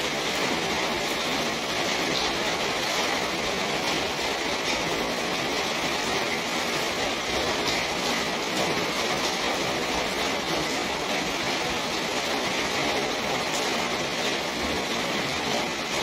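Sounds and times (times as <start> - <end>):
steady rain hiss: 0.0 - 16.0.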